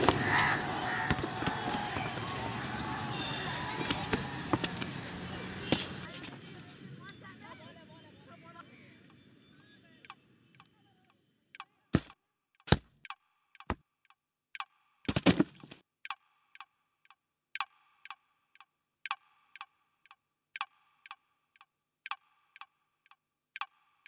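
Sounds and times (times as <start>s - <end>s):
steady ticking: 10.0s - 24.0s
heavy thuds: 15.1s - 15.8s.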